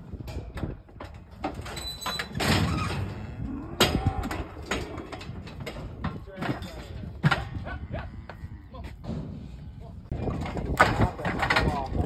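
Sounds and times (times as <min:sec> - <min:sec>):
metal chute clanking and rattling: 0:00.1 - 0:07.6, 0:10.0 - 0:12.0.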